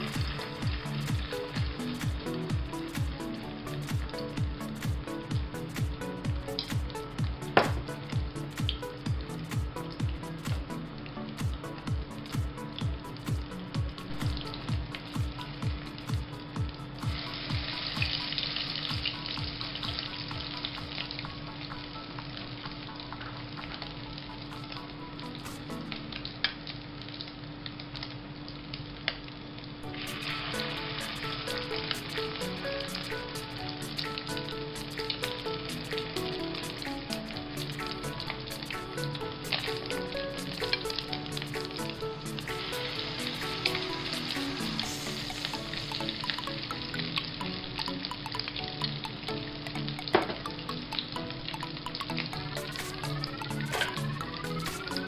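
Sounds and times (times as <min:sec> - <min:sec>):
food sizzling in oil: 0:00.0 - 0:05.8, 0:14.0 - 0:25.9, 0:29.8 - 0:55.0.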